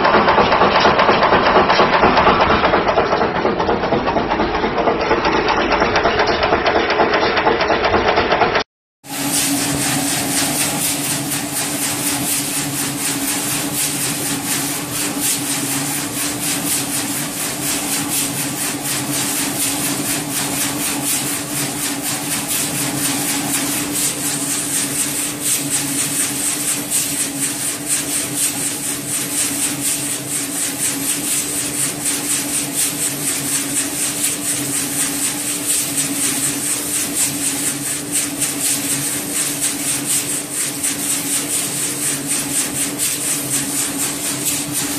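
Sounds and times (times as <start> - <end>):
nails rattling in rotating drum: 0.0 - 8.6, 9.2 - 44.9
machine hum: 9.1 - 44.9.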